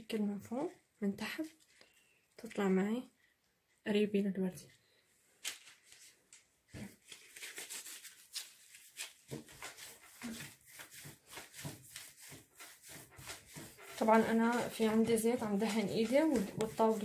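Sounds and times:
dough rubbing on tabletop: 9.0s - 17.0s.

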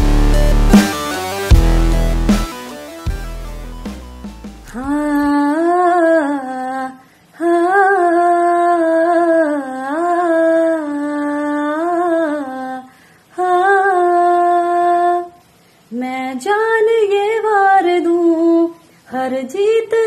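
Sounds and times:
woman singing unaccompanied: 4.6s - 20.0s.

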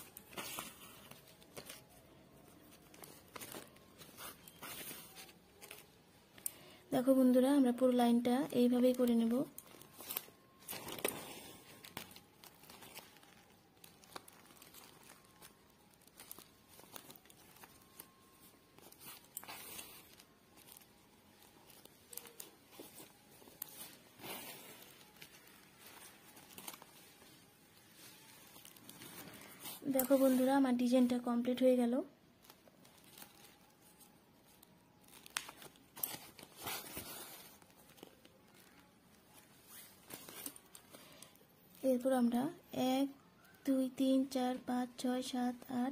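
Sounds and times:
plastic sack rustling: 0.0s - 6.0s, 8.7s - 31.1s, 32.4s - 41.0s.

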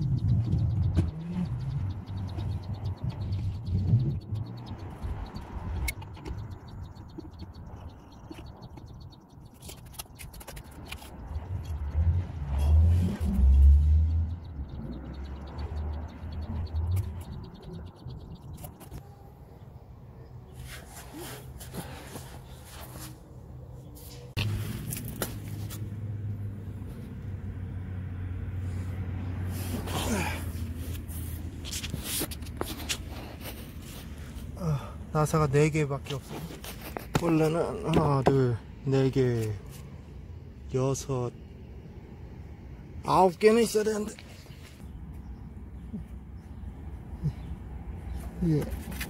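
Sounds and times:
wind rumble on microphone: 0.0s - 6.6s.

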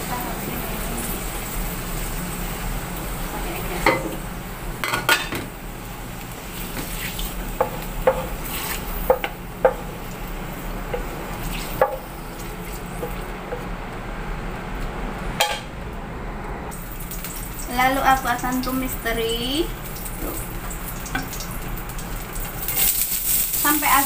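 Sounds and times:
tofu sizzling in a pan: 0.0s - 3.8s, 5.8s - 13.1s, 16.8s - 24.0s
steady low hum: 0.0s - 22.4s
spatula knocking against pan: 9.0s - 9.9s, 11.8s - 12.0s.

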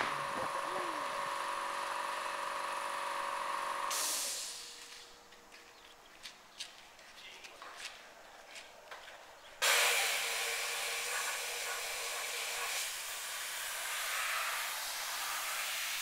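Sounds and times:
compressed air hissing: 3.9s - 4.8s, 9.6s - 16.0s.

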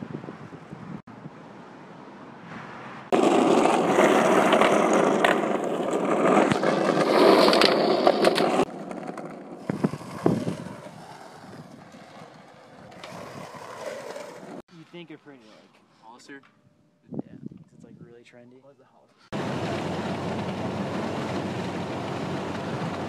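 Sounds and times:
skateboard wheels rolling on asphalt: 2.7s - 14.6s, 19.3s - 23.0s
skateboard clacks: 3.1s - 14.6s, 19.7s - 23.0s.

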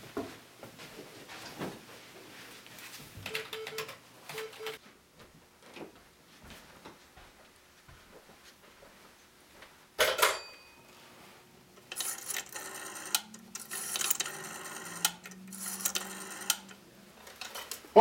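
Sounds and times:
rotary dial whirring and clicking: 11.8s - 17.8s.

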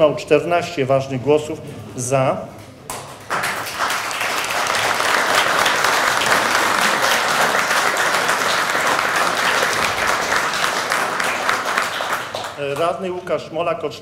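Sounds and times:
people applauding: 2.9s - 13.1s.

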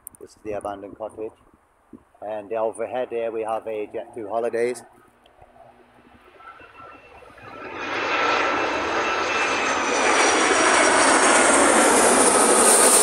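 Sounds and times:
high jet whine: 2.7s - 13.0s
jet engine roar: 3.0s - 13.0s.

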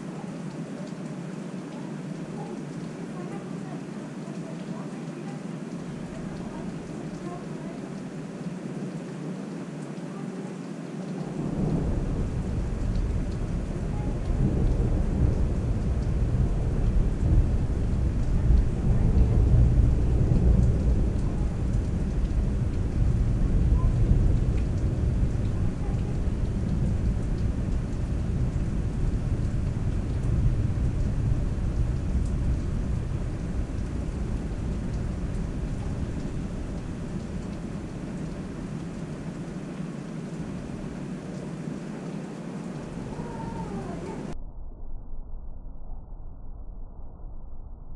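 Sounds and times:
steady rain: 0.0s - 44.4s
rolling thunder: 11.3s - 41.2s.

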